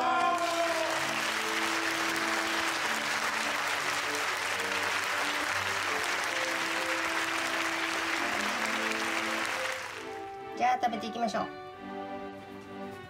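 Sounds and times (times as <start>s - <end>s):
hands clapping: 0.0s - 10.4s
light background music: 0.0s - 13.0s.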